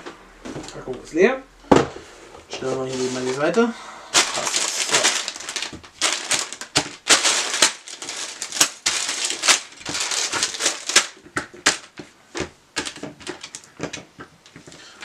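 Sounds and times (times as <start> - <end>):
plastic bags crinkling: 2.6 - 12.0, 12.8 - 15.0.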